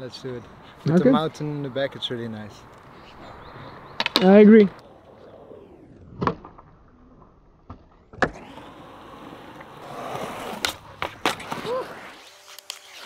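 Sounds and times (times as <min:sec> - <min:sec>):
skateboard wheels rolling on concrete: 0:00.0 - 0:13.0
skateboard landing clack: 0:06.1 - 0:08.6.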